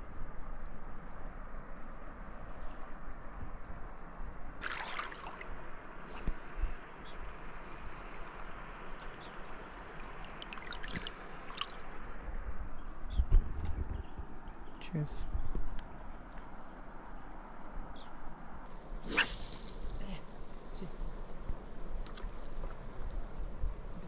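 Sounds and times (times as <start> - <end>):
river water lapping and trickling: 1.0 - 12.6, 19.0 - 24.0
mug splashing in water: 4.6 - 5.5
small splashes and drips: 4.6 - 6.3, 8.2 - 11.9.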